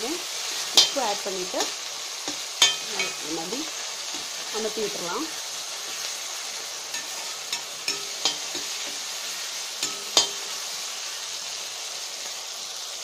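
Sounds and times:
vegetables sizzling in hot oil: 0:00.0 - 0:13.0
spatula knocking and scraping pan: 0:00.7 - 0:03.5, 0:06.9 - 0:09.1, 0:09.8 - 0:10.5.

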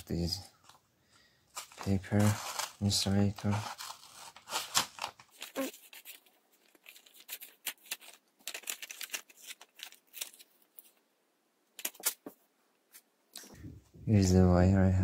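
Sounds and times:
paper rustling: 0:01.5 - 0:11.0.

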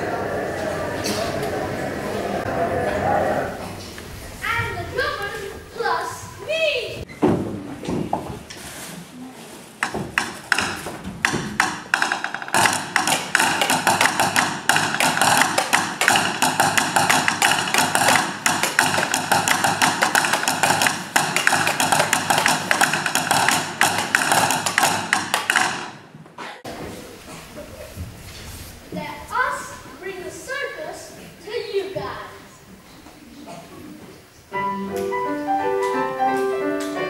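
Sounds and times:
sticks tapping on wooden floor: 0:09.8 - 0:26.0.

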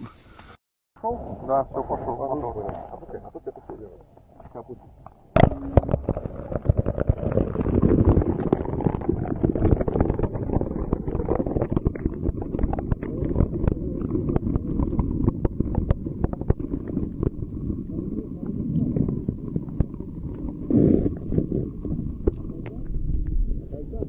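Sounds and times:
muffled underwater rumble: 0:05.4 - 0:24.0.

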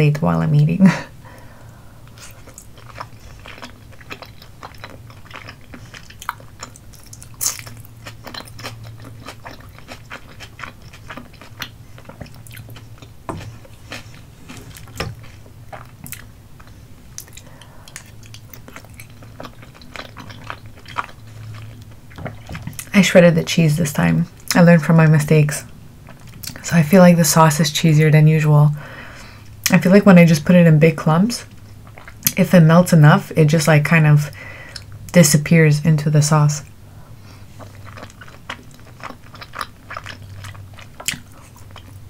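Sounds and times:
mouth chewing sticky food: 0:01.4 - 0:23.0, 0:31.4 - 0:32.4, 0:36.6 - 0:42.0.

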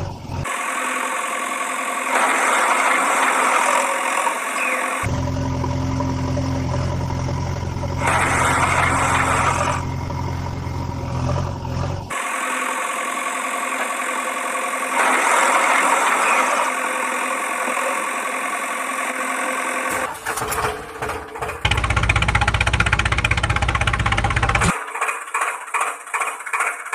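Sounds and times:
engine idling: 0:00.0 - 0:26.9.

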